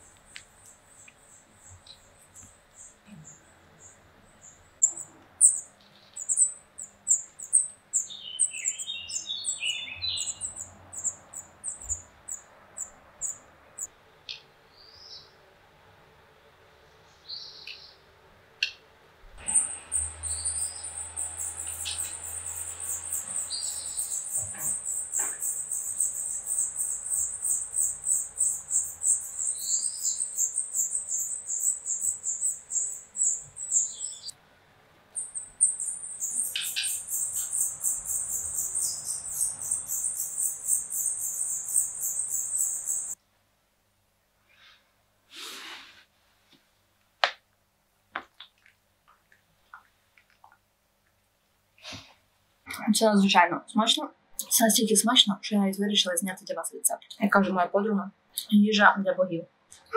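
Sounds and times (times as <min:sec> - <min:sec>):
shrill pulsing insect song: 0:00.0 - 0:13.9, 0:19.4 - 0:34.3, 0:35.2 - 0:43.2.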